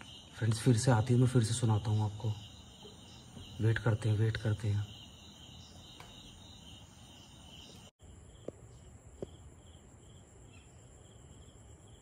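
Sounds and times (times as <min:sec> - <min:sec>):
insect trilling: 0:00.0 - 0:08.5
insect rhythmic chirps: 0:00.0 - 0:12.0.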